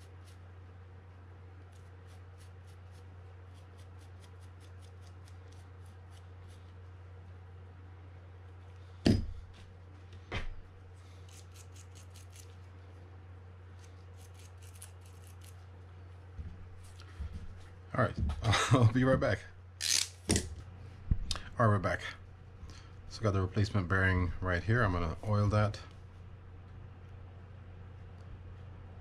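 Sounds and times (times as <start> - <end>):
light scratching strokes: 0.0 - 7.4, 10.8 - 17.0
steady low hum: 0.0 - 29.0
sharp knocks: 9.0 - 9.4.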